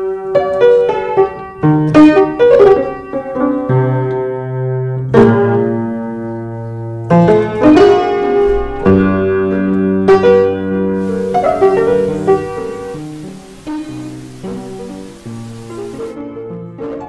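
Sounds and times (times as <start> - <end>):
slow piano music: 11.0 - 16.1.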